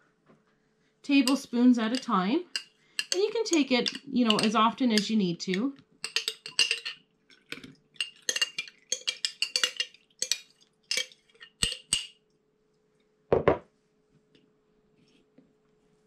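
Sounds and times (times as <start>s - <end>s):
spoon clinking on metal strainer: 1.1s - 5.2s, 6.0s - 12.1s
jar knocking on table: 13.3s - 13.6s.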